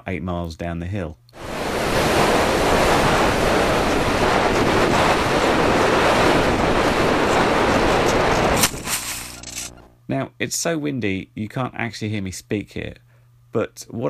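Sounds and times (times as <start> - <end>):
wind rushing over microphone: 1.4 - 9.5.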